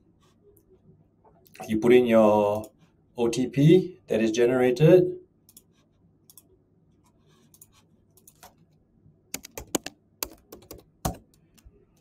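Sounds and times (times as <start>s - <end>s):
keyboard key clicks: 9.3s - 11.4s.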